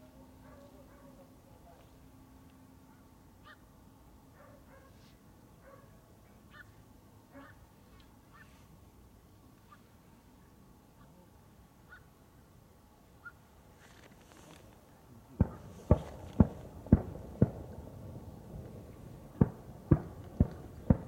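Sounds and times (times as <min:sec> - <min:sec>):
fireworks bangs: 0:15.4 - 0:21.0.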